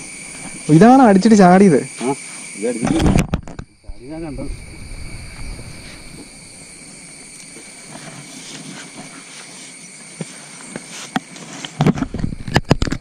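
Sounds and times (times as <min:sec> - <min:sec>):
insects droning: 0:00.0 - 0:13.0
rustling: 0:04.5 - 0:13.0.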